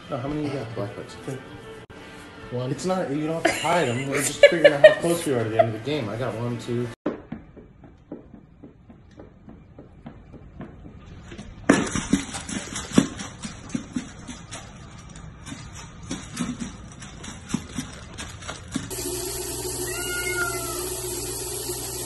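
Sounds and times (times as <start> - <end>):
puppy crunching food: 11.9 - 18.9.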